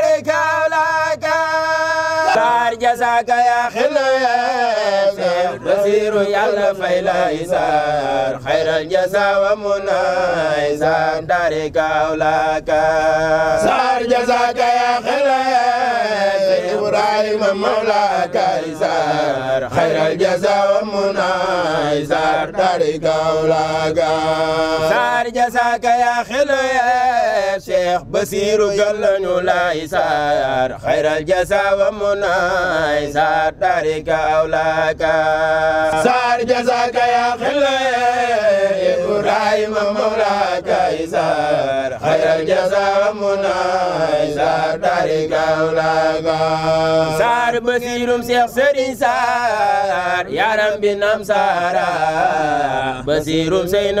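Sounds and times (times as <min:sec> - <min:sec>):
men chanting a devotional song: 0:00.0 - 0:54.0.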